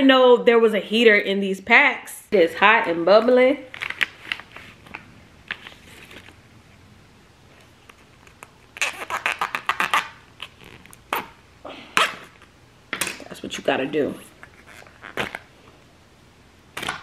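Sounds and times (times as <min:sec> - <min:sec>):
plastic bag crinkling: 0:03.6 - 0:06.4.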